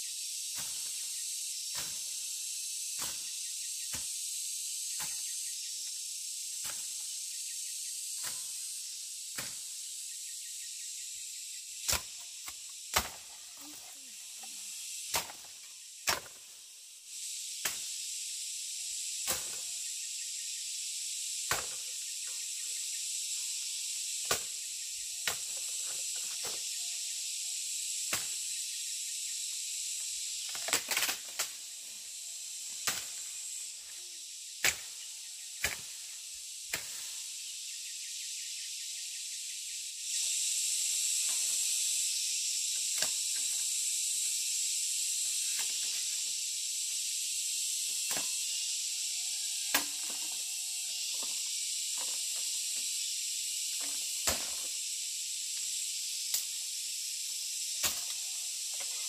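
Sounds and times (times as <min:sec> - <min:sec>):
high insect chorus: 0:00.0 - 0:59.0
blade chopping wood: 0:11.9 - 0:13.3, 0:15.1 - 0:16.4, 0:34.6 - 0:34.9.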